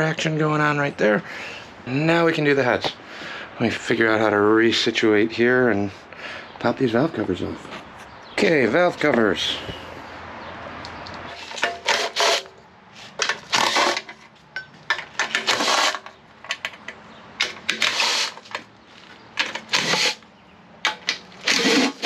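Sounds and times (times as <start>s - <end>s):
impact driver rattling bursts: 11.3s - 12.6s, 13.2s - 14.2s, 15.0s - 18.7s, 19.4s - 20.2s, 20.8s - 22.0s.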